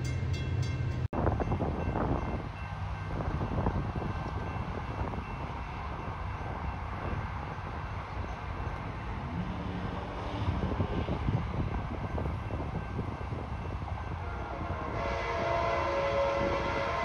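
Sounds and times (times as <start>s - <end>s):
diesel locomotive rumbling: 0.0s - 17.0s
train air horn: 14.2s - 17.0s.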